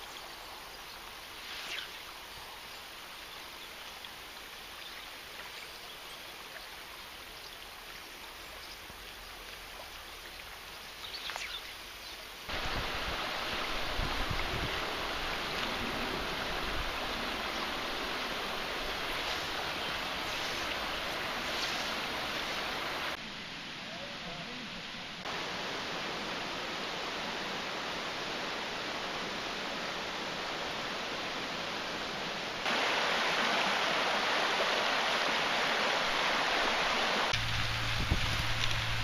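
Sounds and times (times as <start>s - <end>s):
river rushing over rocks: 12.5s - 23.3s, 25.2s - 39.0s.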